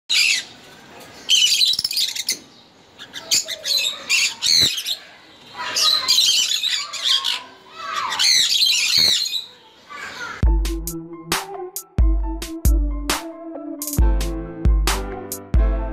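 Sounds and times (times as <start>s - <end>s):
cockatiels chirping and squawking: 0.1s - 0.5s, 1.3s - 10.4s.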